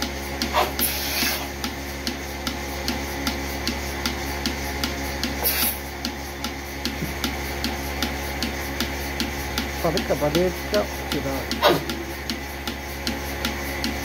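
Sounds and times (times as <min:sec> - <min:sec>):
milking pulsator clicks: 0:00.0 - 0:14.0
vacuum pump hum: 0:00.0 - 0:14.0
short hiss of air: 0:00.8 - 0:01.5, 0:05.4 - 0:05.8.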